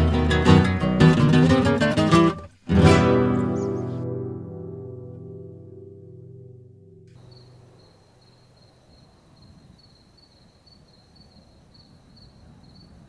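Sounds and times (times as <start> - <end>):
cricket chirping: 7.1 - 13.0.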